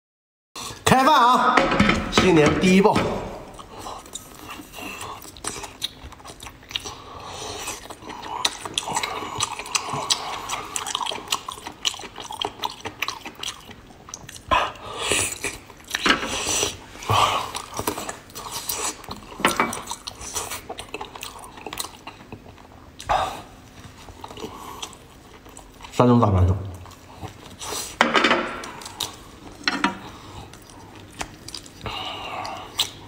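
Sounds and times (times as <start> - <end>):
chewing with mouth clicks: 3.5 - 26.0, 26.7 - 28.0, 28.6 - 33.0.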